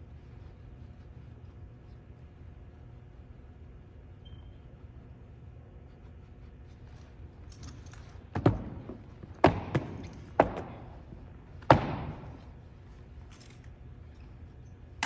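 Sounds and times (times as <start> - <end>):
boot heels stamping: 8.2 - 12.8.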